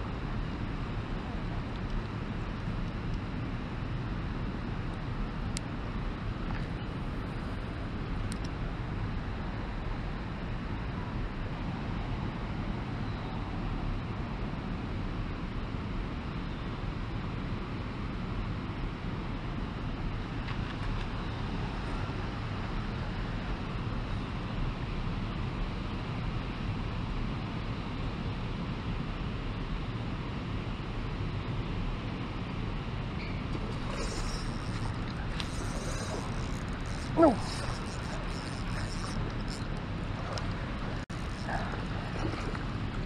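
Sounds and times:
wind on microphone: 33.5 - 43.0
river rushing over riffles: 33.7 - 43.0.

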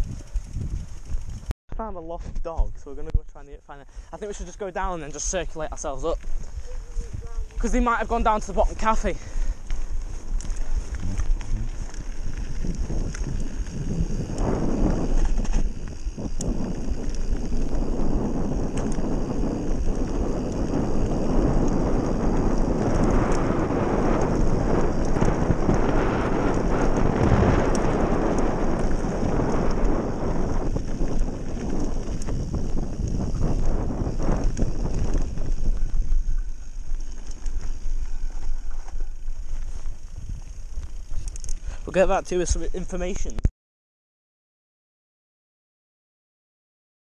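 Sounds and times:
wind buffeting microphone: 0.0 - 43.3
bike tyres rolling on gravel: 0.0 - 43.4
faint grit clicks: 34.4 - 41.7.

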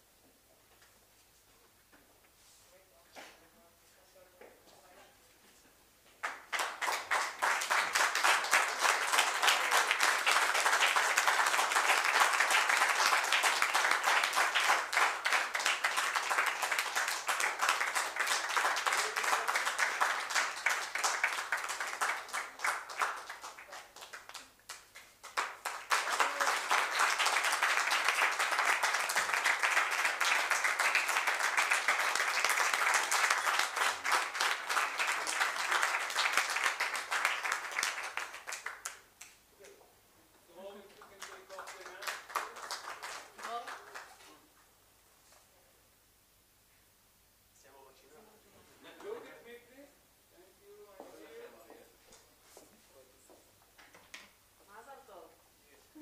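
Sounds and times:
small audience applauding: 6.2 - 39.8, 40.5 - 44.4.

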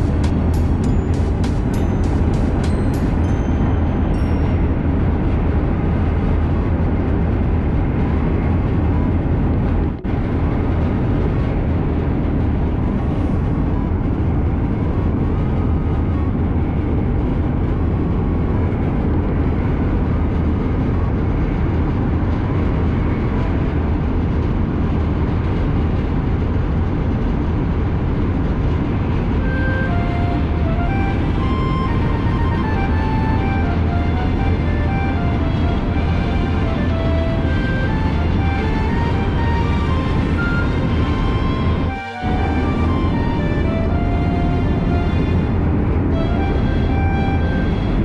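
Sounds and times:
train wheels and air rumble: 0.0 - 48.0
short tones: 29.4 - 45.4.

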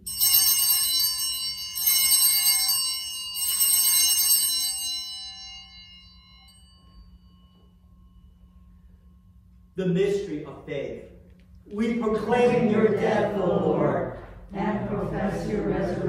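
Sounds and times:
altar bells jangling: 0.0 - 9.3.

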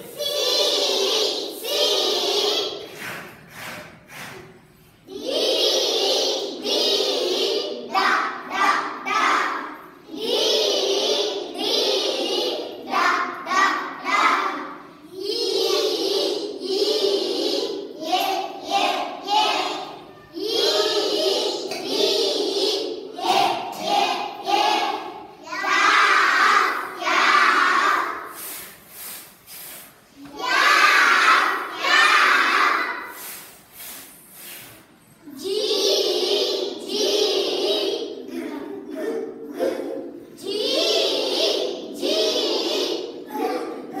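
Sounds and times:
children chanting in unison: 0.0 - 44.0.

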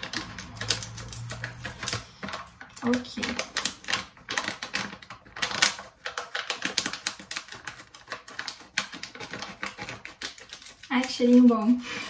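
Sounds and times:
scissors snipping: 0.0 - 4.0.

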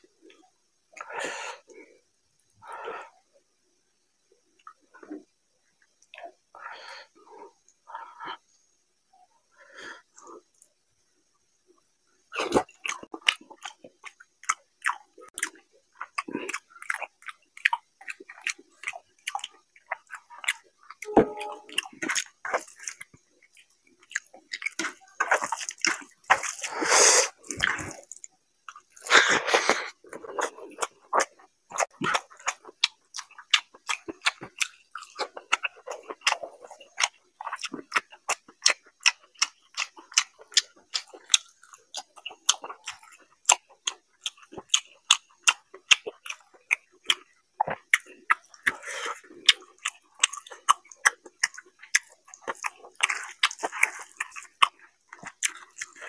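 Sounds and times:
person chewing with mouth clicks: 12.3 - 56.0.

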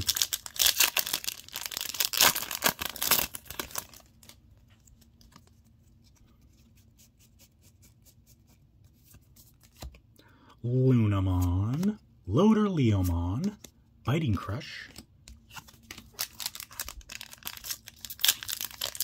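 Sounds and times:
foil pack tearing and crinkling: 0.0 - 4.1, 16.2 - 19.0.

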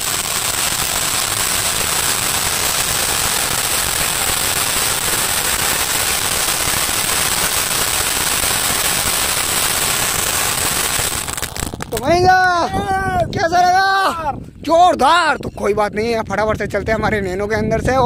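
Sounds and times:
firecracker hissing and crackling: 0.0 - 12.3.

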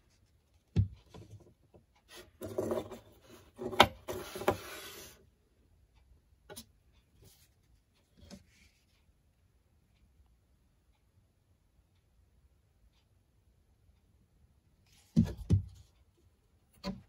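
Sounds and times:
plastic scraping and rubbing: 2.1 - 5.2.

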